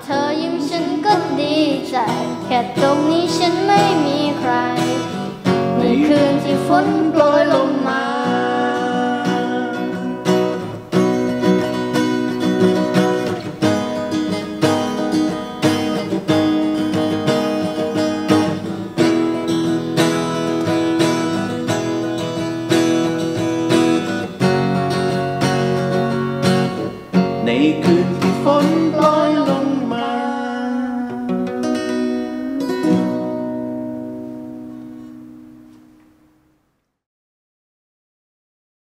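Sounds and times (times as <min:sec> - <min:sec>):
person singing: 0:00.0 - 0:10.6, 0:27.4 - 0:33.9
acoustic guitar picking and strumming: 0:00.0 - 0:36.2.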